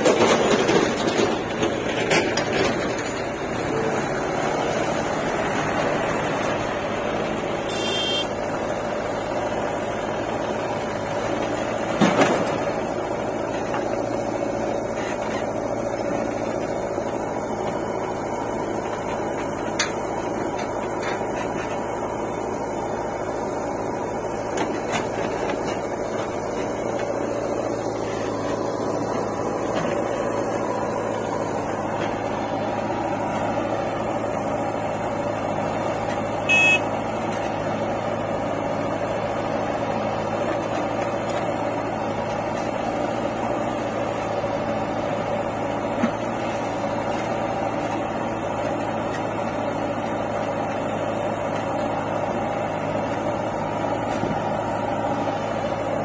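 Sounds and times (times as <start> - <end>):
backhoe digging soil: 0.0 - 56.0
diesel engines running: 0.0 - 56.0
loud beep: 7.7 - 8.3, 36.5 - 36.9.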